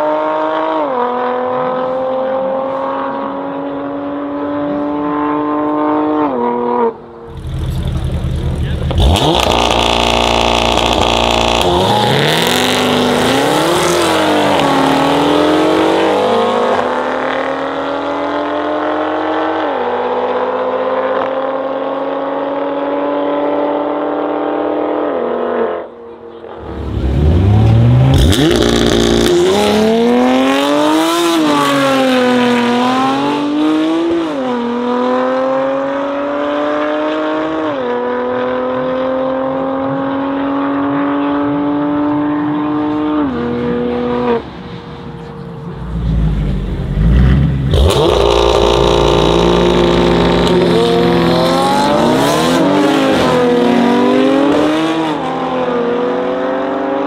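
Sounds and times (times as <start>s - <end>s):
cars accelerating hard: 0.0s - 57.0s
low engine rumble: 7.3s - 9.0s.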